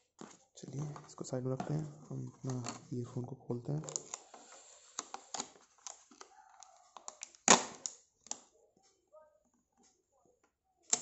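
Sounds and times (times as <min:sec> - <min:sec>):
packaging clicks and rustles: 0:03.8 - 0:08.5.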